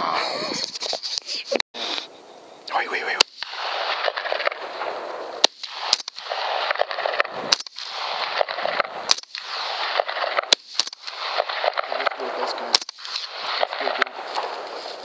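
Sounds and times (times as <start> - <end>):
sharp clicks: 10.4 - 14.1.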